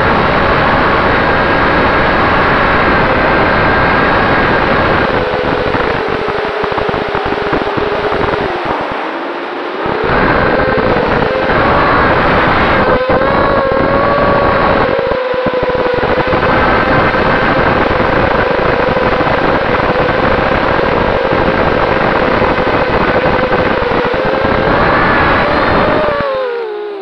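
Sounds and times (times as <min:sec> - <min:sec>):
wind rumble on microphone: 0:00.0 - 0:27.0
drone motors whining: 0:23.4 - 0:27.0.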